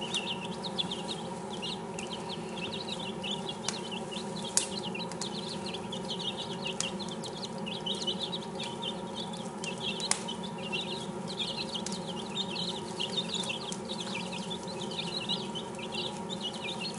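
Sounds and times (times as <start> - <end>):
chicks peeping: 0.0 - 16.9
steady low hum: 0.0 - 16.9.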